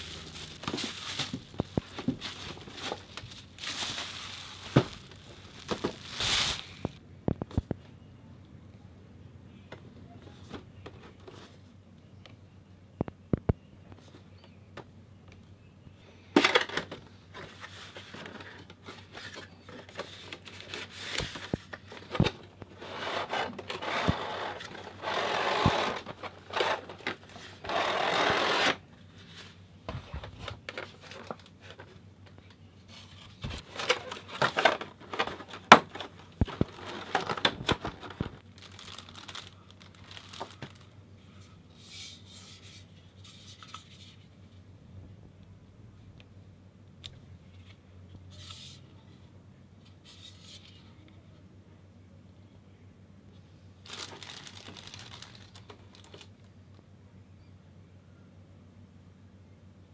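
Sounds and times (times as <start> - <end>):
cardboard box rustling and scraping: 22.7 - 31.4.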